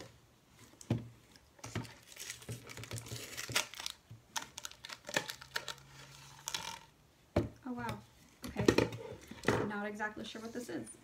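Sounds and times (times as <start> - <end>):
packing paper crinkling: 1.8 - 6.9.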